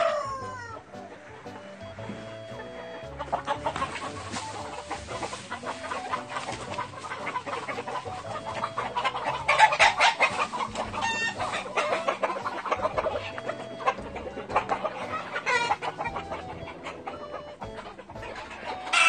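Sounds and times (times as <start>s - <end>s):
chickens clucking: 0.0s - 19.0s
scuffing and rustling: 2.0s - 16.6s.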